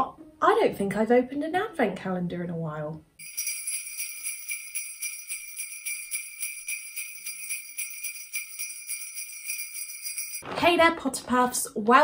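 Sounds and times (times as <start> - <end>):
sleigh bells jingling: 3.2 - 10.4.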